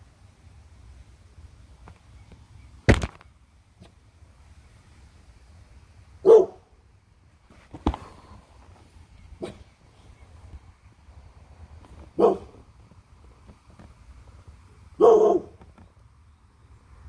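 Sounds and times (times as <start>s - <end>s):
dog barking: 6.2s - 6.7s, 9.4s - 9.6s, 12.2s - 12.6s, 15.0s - 15.6s.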